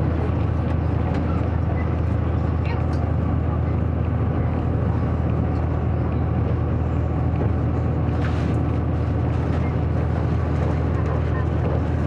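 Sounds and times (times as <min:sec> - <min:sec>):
diesel engine drone: 0:00.0 - 0:12.0
train wheels rumbling on rails: 0:00.0 - 0:12.0.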